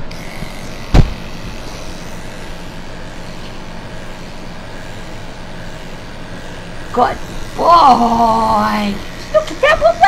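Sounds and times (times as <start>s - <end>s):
electric clippers motor hum: 0.0s - 10.0s
sharp thump: 0.9s - 1.2s.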